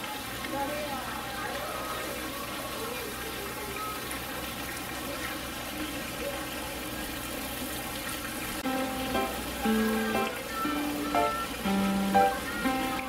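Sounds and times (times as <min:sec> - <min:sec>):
flowing water rushing: 0:00.0 - 0:13.0.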